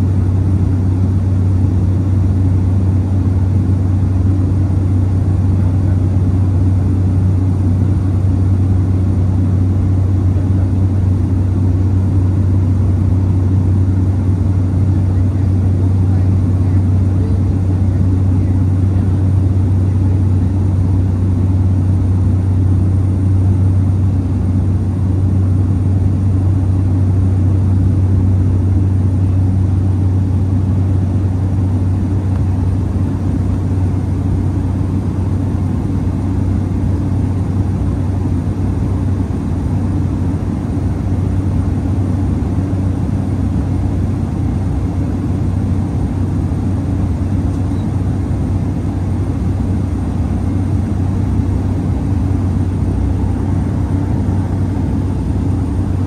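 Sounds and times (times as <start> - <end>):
propeller hum: 0.0 - 56.0
engine and air rushing noise: 14.9 - 56.0.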